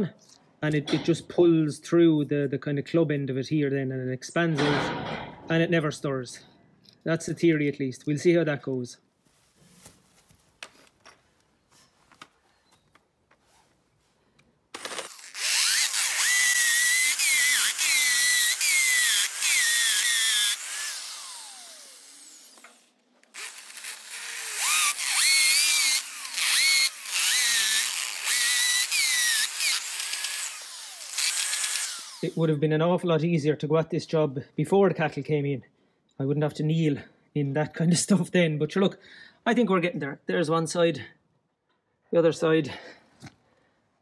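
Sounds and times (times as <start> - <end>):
electric drill boring into concrete: 14.8 - 32.4.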